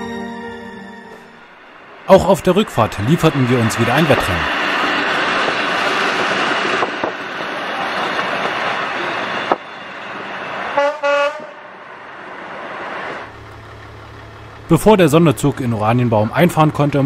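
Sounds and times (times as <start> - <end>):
train wheels and wind rushing: 1.0 - 13.3
train horn toots: 10.7 - 11.7.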